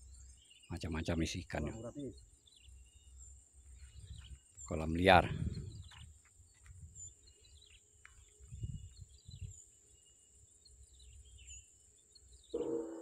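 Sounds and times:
bird chirps: 0.0s - 6.2s, 7.0s - 13.0s
high insect drone: 10.8s - 13.0s.

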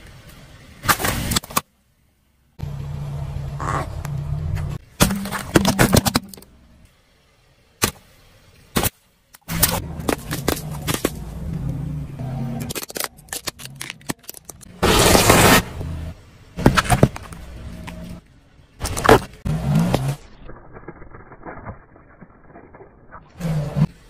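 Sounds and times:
car humming: 1.9s - 8.6s, 9.5s - 12.8s, 13.5s - 20.2s
tyre crushing small objects: 4.9s - 6.5s, 8.7s - 11.4s, 12.5s - 15.6s, 16.6s - 18.2s, 18.8s - 23.9s
loud burst: 14.8s - 16.0s.

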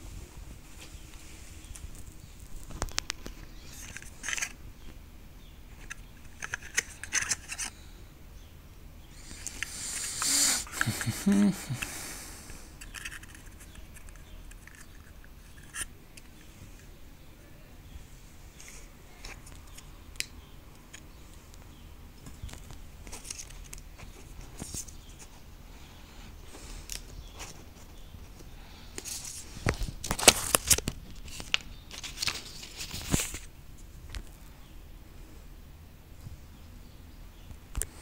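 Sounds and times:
paper rustling and crinkling: 22.2s - 25.4s, 29.0s - 33.5s.

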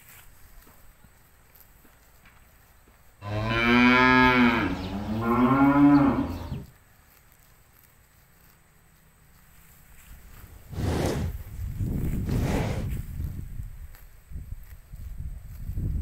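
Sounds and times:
cow mooing: 3.2s - 6.6s.

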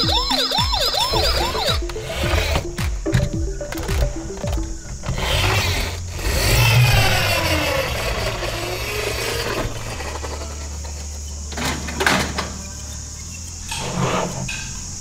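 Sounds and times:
truck engine revving and idling: 5.0s - 11.4s.

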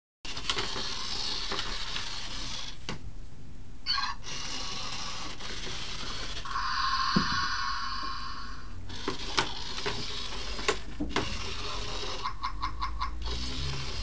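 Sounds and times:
toy motor whirring: 0.3s - 2.8s, 3.9s - 14.0s
steady electronic tone: 6.4s - 8.8s
warbling electronic sound: 6.5s - 8.7s.

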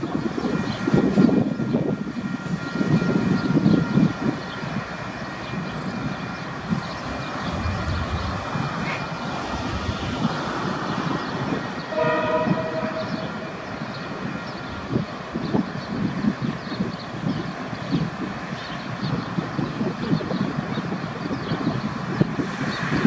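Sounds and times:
train horn: 11.8s - 15.5s.

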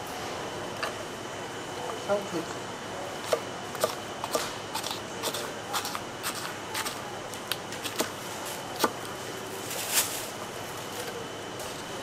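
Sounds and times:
knife chopping on cutting board: 3.3s - 7.0s.

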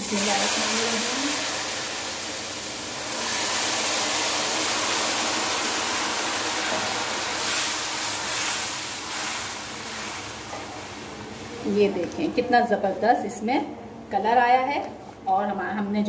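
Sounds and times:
water poured into hot pan: 0.0s - 11.5s
ghee sizzling and hissing: 0.0s - 12.0s.

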